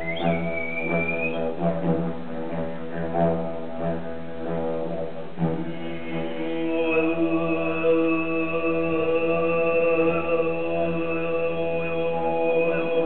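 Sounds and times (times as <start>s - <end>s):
high whistle-like tone: 0.0s - 1.5s
didgeridoo drone: 0.0s - 13.0s
man chanting: 5.6s - 13.0s.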